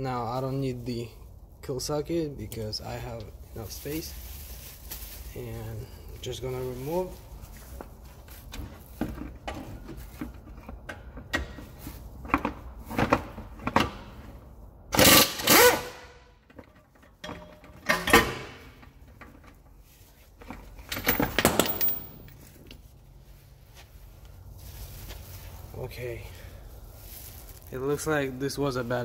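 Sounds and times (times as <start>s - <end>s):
impact wrench hammering: 21.0s - 22.3s.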